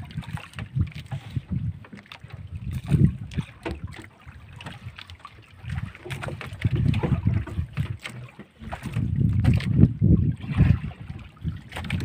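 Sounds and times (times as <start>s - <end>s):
wind buffeting microphone: 0.0s - 12.0s
wet net knocking against hull: 2.7s - 4.9s, 5.8s - 9.8s.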